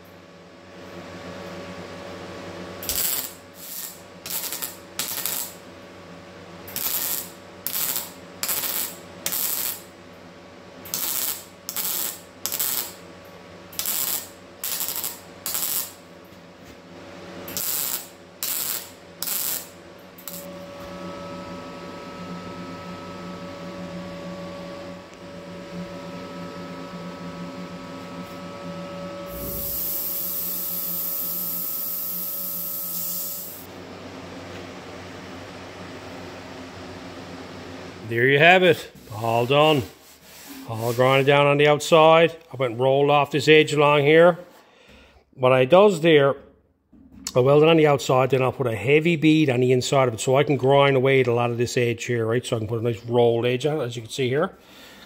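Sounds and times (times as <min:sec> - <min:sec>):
motor hum with whine: 0:00.0 - 0:55.0
welding crackling bursts: 0:02.8 - 0:05.6, 0:06.7 - 0:09.9, 0:10.9 - 0:13.0, 0:13.8 - 0:16.0, 0:17.5 - 0:20.5, 0:29.3 - 0:33.7
loud hiss: 0:29.3 - 0:33.7.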